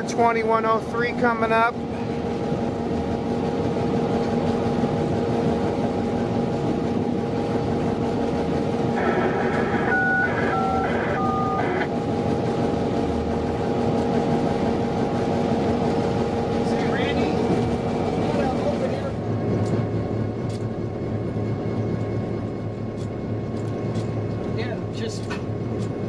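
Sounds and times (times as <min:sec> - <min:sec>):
diesel locomotive engine drone: 0:00.0 - 0:26.0
wheel and rail rumble: 0:00.0 - 0:26.0
stepped falling tones: 0:09.0 - 0:11.9.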